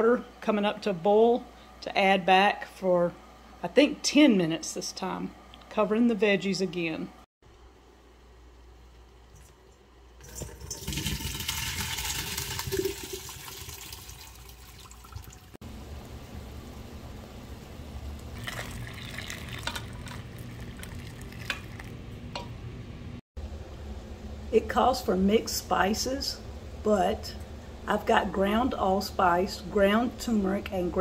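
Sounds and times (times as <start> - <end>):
pot of water boiling: 9.0 - 22.5
water splashing into colander: 10.2 - 15.6, 18.4 - 22.0.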